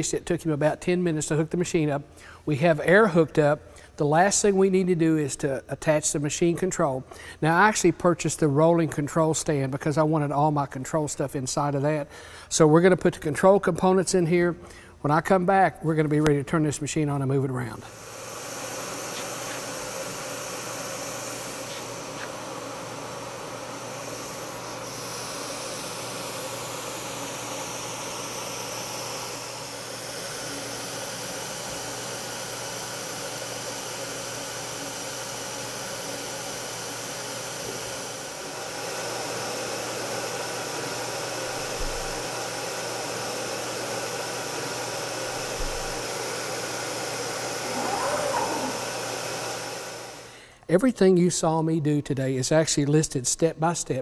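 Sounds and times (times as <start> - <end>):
cnc router humming and hissing: 17.8 - 50.5
motor whines: 17.9 - 40.8, 43.8 - 50.4.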